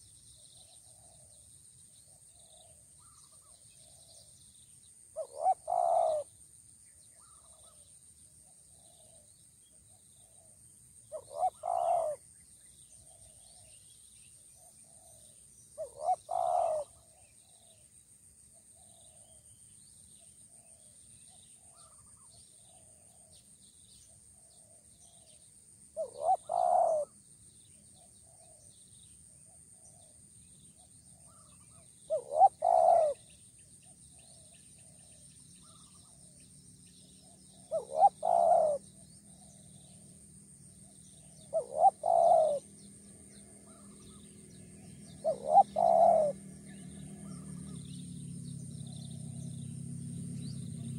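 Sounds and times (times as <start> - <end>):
dove cooing: 5.2 - 6.3, 11.1 - 12.2, 15.8 - 17.7, 26.0 - 27.2, 31.2 - 33.3, 37.5 - 39.9, 40.8 - 42.7, 43.6 - 48.0.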